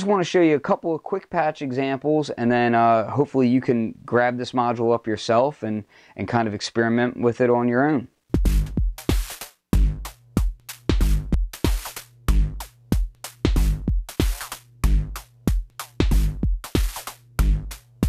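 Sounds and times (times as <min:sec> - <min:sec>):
synthesized drum beat: 0:08.3 - 0:18.0.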